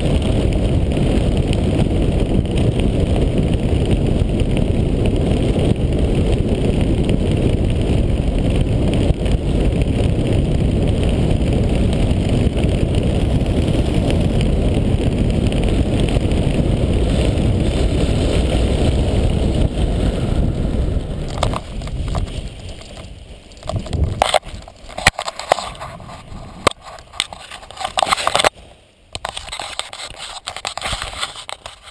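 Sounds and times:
wind buffeting microphone: 0:00.0 - 0:31.9
rustles and clicks of gear handled: 0:21.2 - 0:28.6, 0:29.2 - 0:31.9.

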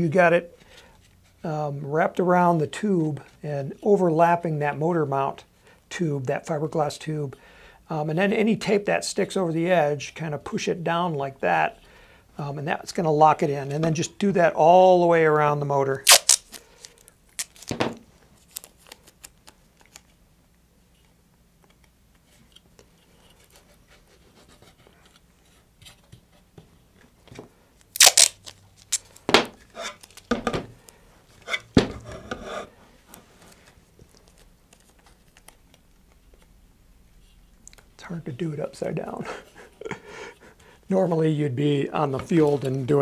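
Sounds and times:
masking tape ripping: 0:16.0 - 0:17.8, 0:27.9 - 0:30.3.

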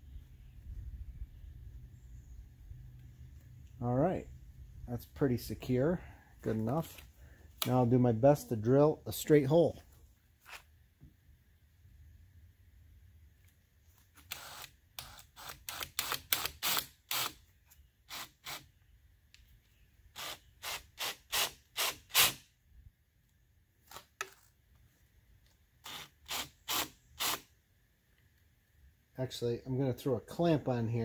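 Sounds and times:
cordless drill cutting plastic pipe: 0:14.2 - 0:17.4, 0:20.2 - 0:22.4, 0:25.8 - 0:27.4.

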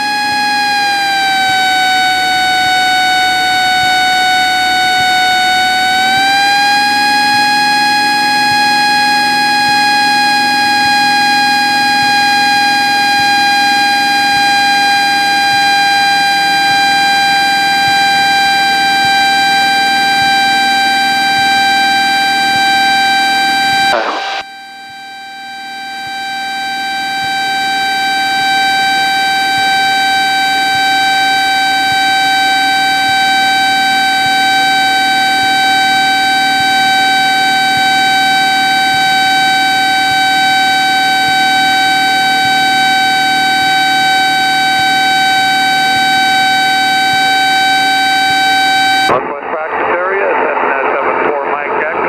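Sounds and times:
aircraft engine and propeller drone: 0:00.0 - 0:25.2
stall warning horn tone: 0:00.0 - 0:49.2.

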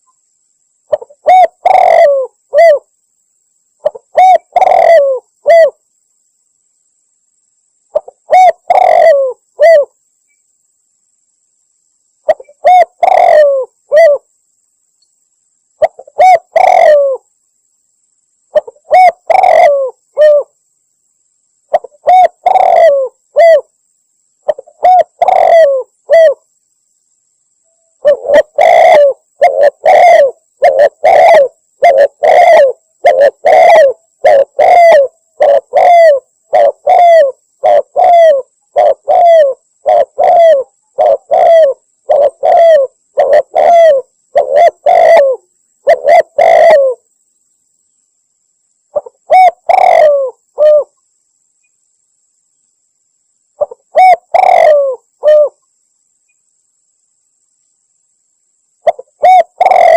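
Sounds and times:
dove cooing: 0:00.9 - 0:02.9, 0:03.8 - 0:05.8, 0:07.9 - 0:10.0, 0:12.2 - 0:14.3, 0:15.8 - 0:17.3, 0:18.5 - 0:20.5, 0:21.7 - 0:23.7, 0:24.5 - 0:26.4, 0:28.0 - 0:47.0, 0:49.0 - 0:51.0, 0:53.6 - 0:55.6, 0:58.8 - 0:59.9.

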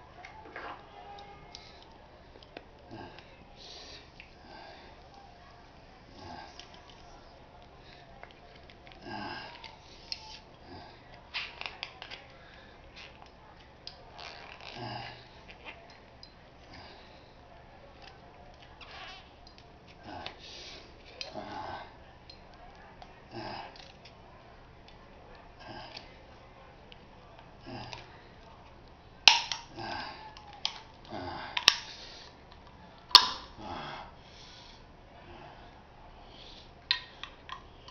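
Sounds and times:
effortful breaths: 0:00.0 - 0:13.5, 0:14.2 - 0:22.6, 0:29.4 - 0:37.9
sharp metal cracks: 0:29.3 - 0:29.7, 0:33.1 - 0:33.5.

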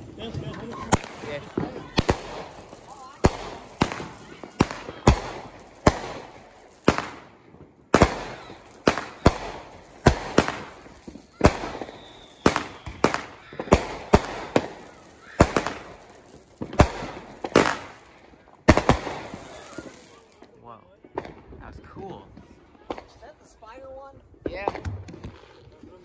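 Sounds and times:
fireworks banging: 0:00.0 - 0:26.0.

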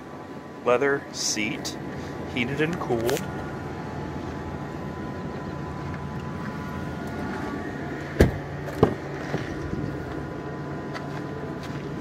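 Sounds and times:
steady hum: 0:00.0 - 0:12.0
car door clunks: 0:08.1 - 0:09.5.

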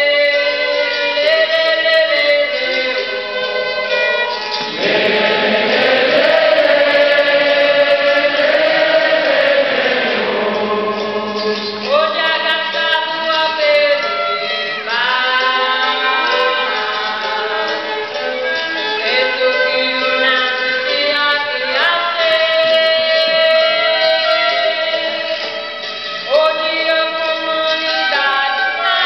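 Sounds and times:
violin: 0:00.0 - 0:29.0
voices singing together: 0:04.6 - 0:12.8.

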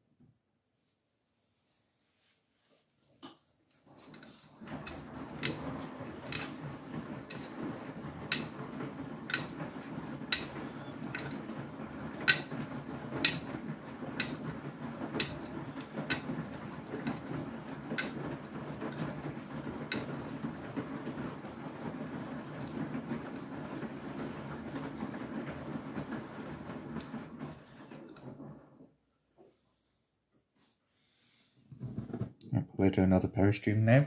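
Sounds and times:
washing machine churning wet clothes: 0:02.0 - 0:29.7
washing machine drum clicking: 0:03.9 - 0:28.8.

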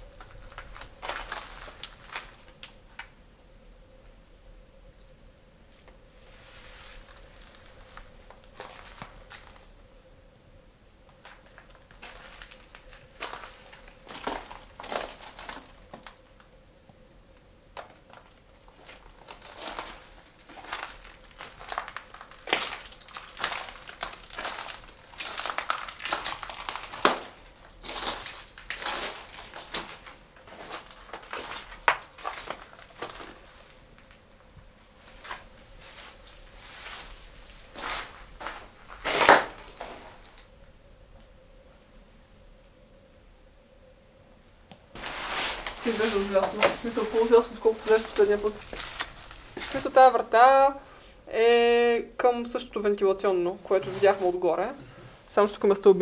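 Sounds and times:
footsteps crunching on rubble: 0:00.0 - 0:03.2, 0:06.3 - 0:09.8, 0:11.1 - 0:16.2, 0:17.8 - 0:40.5, 0:44.9 - 0:50.3.

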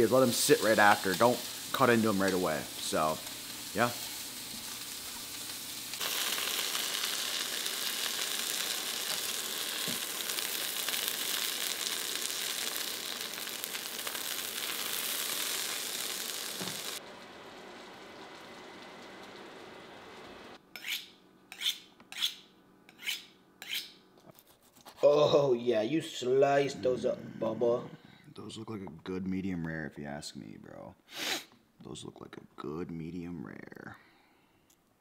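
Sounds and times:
meat sizzling in a skillet: 0:00.0 - 0:21.0
knife on honing steel: 0:20.8 - 0:24.0.

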